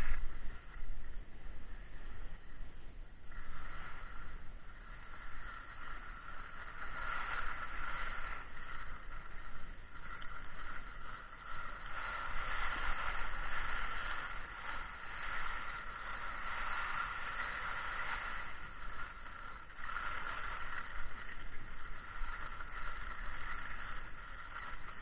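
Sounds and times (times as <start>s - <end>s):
skis hissing over snow: 0.0s - 25.0s
wind rumble on microphone: 0.0s - 25.0s.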